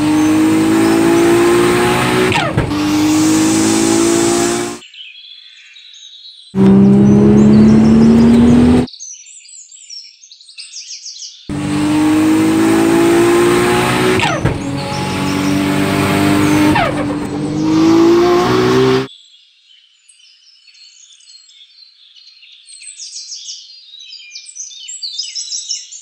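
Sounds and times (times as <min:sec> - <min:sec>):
car engine accelerating hard: 0:00.0 - 0:04.8, 0:06.6 - 0:08.9, 0:11.5 - 0:19.1.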